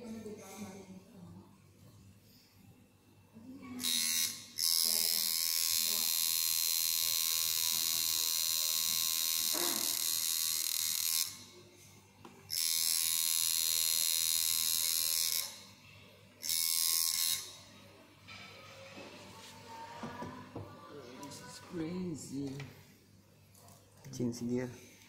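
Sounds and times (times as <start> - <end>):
tattoo machine buzzing: 3.7 - 11.7, 12.5 - 15.8, 16.4 - 17.8.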